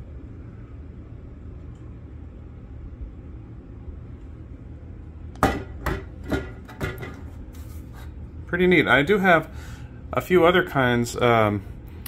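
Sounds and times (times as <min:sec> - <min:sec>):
low steady hum: 0:00.0 - 0:12.0
display case knocks: 0:05.4 - 0:07.2.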